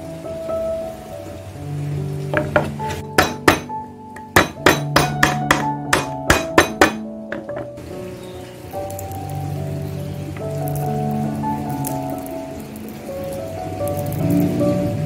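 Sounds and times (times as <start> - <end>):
background music: 0.0 - 15.0
stone pestle knocking on wood: 2.4 - 7.7.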